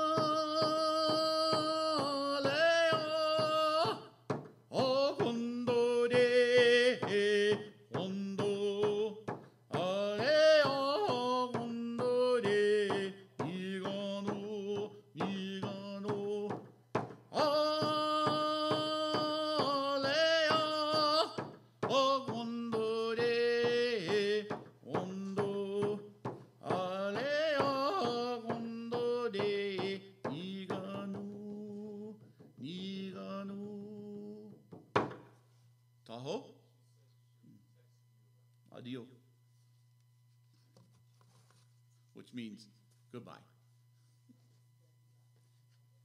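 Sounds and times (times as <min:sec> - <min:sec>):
man singing a chant: 0:00.0 - 0:04.1, 0:04.7 - 0:16.7, 0:17.3 - 0:34.6
frame drum beating: 0:00.0 - 0:31.8.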